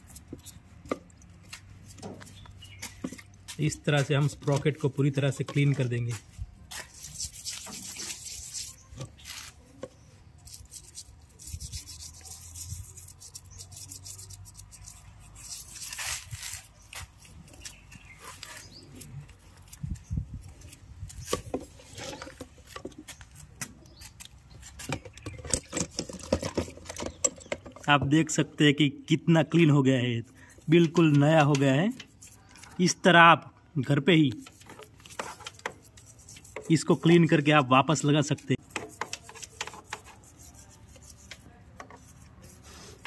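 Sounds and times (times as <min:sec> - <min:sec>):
toothbrush scrubbing metal: 0:06.9 - 0:08.9, 0:10.4 - 0:16.1.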